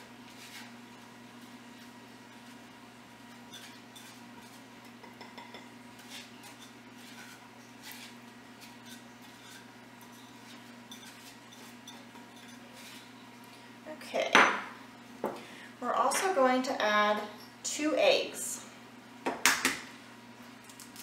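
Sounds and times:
spatula scraping glass bowl: 3.3s - 4.6s, 5.9s - 13.2s.

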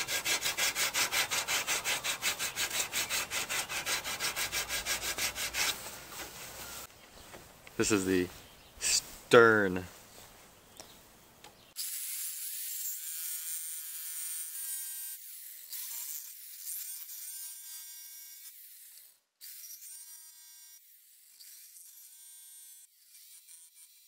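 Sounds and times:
jigsaw cutting wood: 0.0s - 5.8s.

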